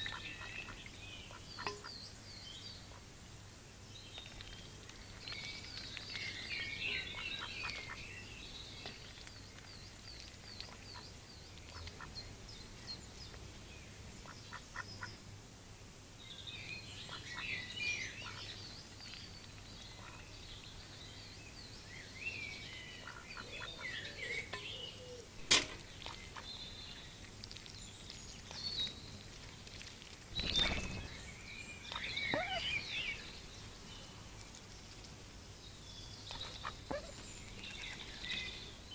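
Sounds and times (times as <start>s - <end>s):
songbirds chirping: 0.0s - 38.9s
duck bill clicking drinking: 8.9s - 12.2s, 27.2s - 30.6s.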